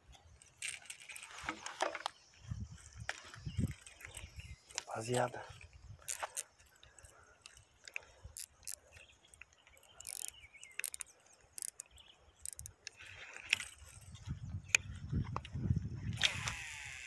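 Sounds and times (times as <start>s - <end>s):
fishing reel clicks and taps: 6.1s - 6.8s, 7.4s - 13.7s, 16.1s - 17.0s.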